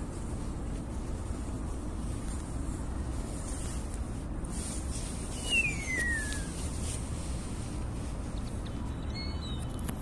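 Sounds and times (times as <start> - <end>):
steady low rumble: 0.0 - 10.0
starling falling whistle: 5.4 - 6.6.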